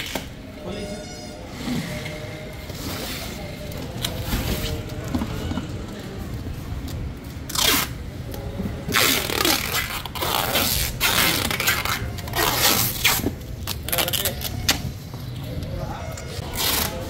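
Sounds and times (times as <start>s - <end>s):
packing tape pulled off roll: 7.5s - 8.0s, 8.9s - 14.8s.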